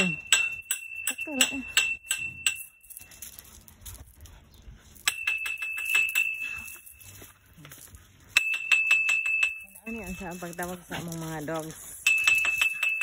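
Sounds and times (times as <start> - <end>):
taps ringing on metal pole: 0.0 - 2.7, 5.1 - 6.6, 8.4 - 10.6, 12.0 - 13.0.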